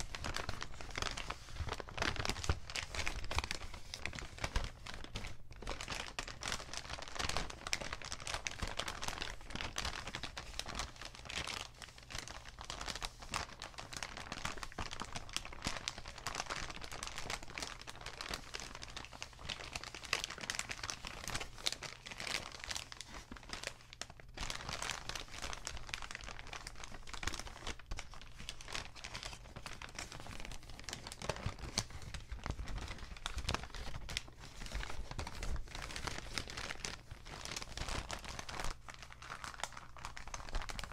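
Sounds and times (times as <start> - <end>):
paper bags crinkling: 0.0 - 40.9.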